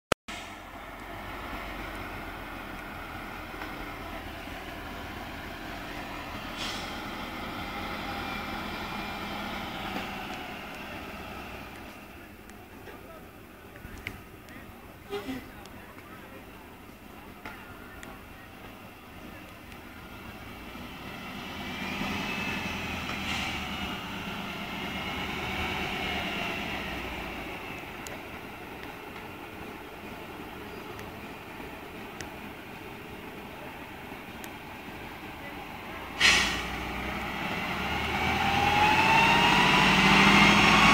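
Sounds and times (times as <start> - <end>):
truck diesel engine running: 0.3 - 40.9
short hiss: 6.5 - 7.1, 36.2 - 36.8.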